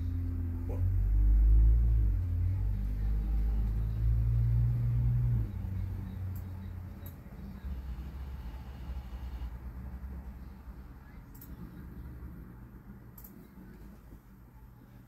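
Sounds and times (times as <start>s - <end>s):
deep low rumble: 0.0s - 8.5s.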